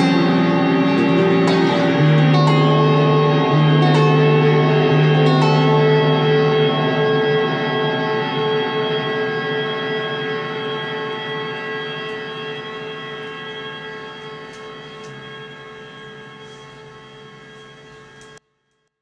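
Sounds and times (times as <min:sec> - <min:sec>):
electric guitar chord ringing: 0:00.0 - 0:18.4.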